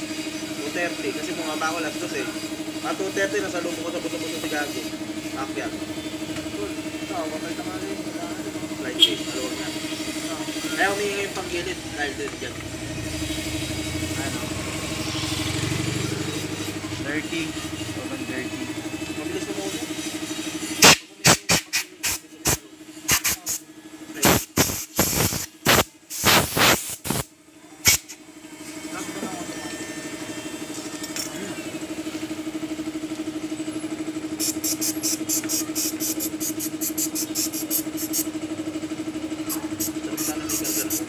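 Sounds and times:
aerosol spray bursts: 19.6s - 28.2s, 34.4s - 38.3s, 39.5s - 41.0s.

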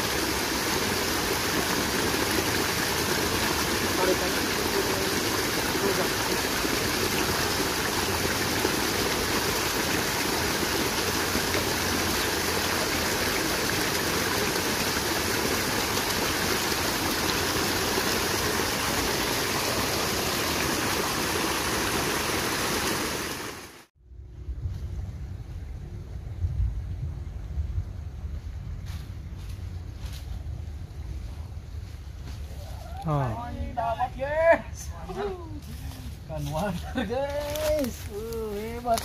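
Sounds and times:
stream flowing: 0.0s - 23.9s
low rumble: 24.0s - 32.3s.

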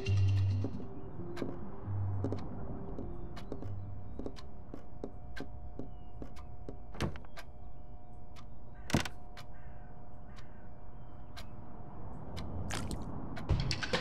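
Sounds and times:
faint steady hum: 0.0s - 13.3s
clock ticking: 3.3s - 5.5s.

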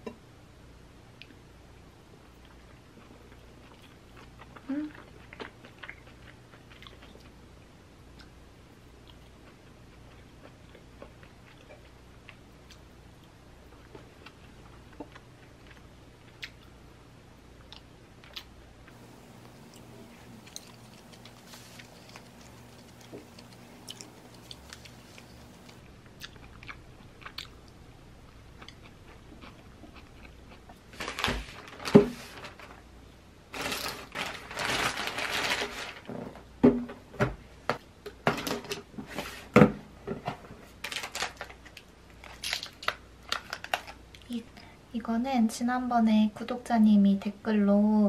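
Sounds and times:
faint chewing: 2.3s - 7.4s, 9.0s - 16.8s, 17.6s - 31.0s
plastic bag rustling: 18.9s - 25.8s, 30.9s - 32.8s, 33.5s - 36.2s, 40.7s - 42.7s
plastic wrapper crinkling: 18.9s - 25.8s, 31.0s - 32.8s, 33.5s - 36.1s, 40.8s - 44.0s.

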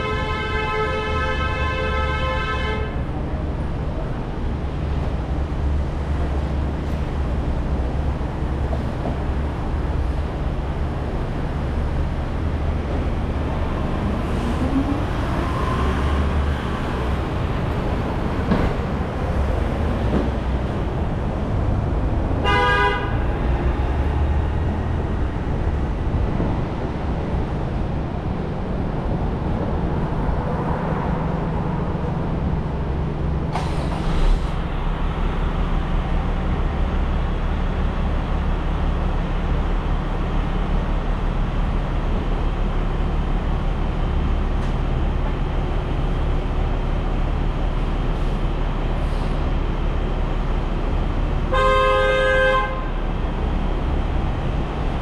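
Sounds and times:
vehicle horn toot: 0.0s - 3.0s, 22.4s - 23.2s, 51.5s - 52.9s
car road and engine noise: 0.0s - 55.0s.

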